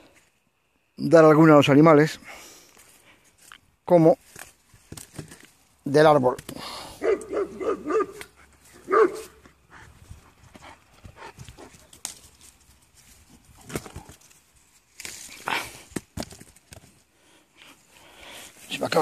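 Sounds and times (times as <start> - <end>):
leaves and branches rustling: 2.3 - 19.0
dog barking: 7.0 - 9.4.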